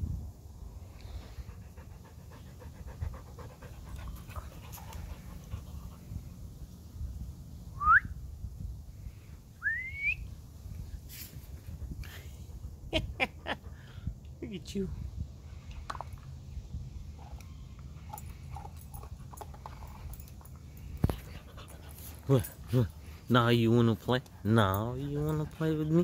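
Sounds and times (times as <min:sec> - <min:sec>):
dog panting: 0:01.1 - 0:06.4, 0:18.0 - 0:26.0.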